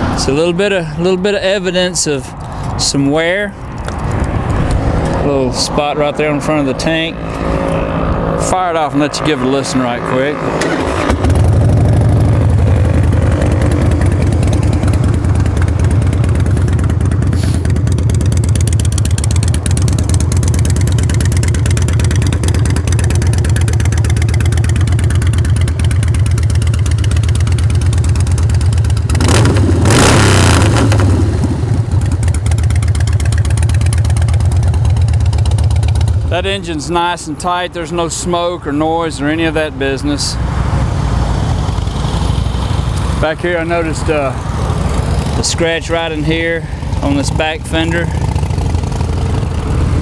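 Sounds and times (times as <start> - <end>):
motorcycle engine revving: 3.6 - 38.2, 40.3 - 50.0
motorcycle engine idling: 11.2 - 29.8, 31.1 - 36.7, 41.6 - 50.0.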